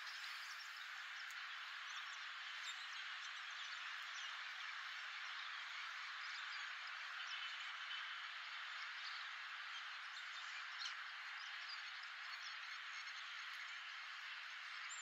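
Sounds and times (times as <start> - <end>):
faint bird chirps: 0.0 - 15.0.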